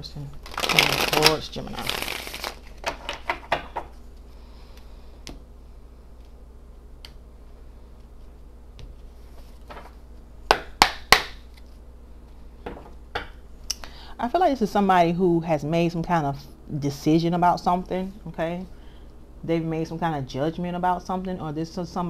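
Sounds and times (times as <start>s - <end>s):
cards shuffling clicks: 0.4s - 3.5s.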